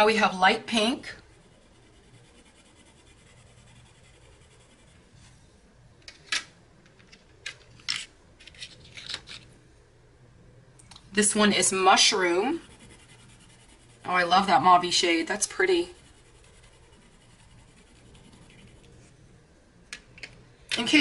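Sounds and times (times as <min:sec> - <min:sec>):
pencil scribbling on paper: 0:00.7 - 0:05.1, 0:12.2 - 0:19.1.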